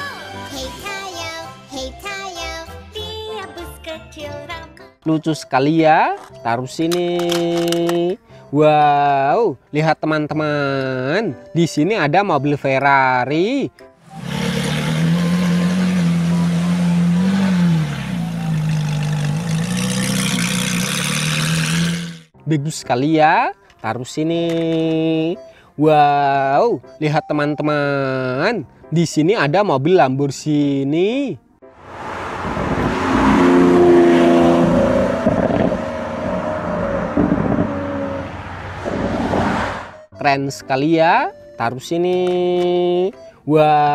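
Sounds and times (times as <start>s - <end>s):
engine revving: 14.0s - 22.3s, 31.8s - 40.0s.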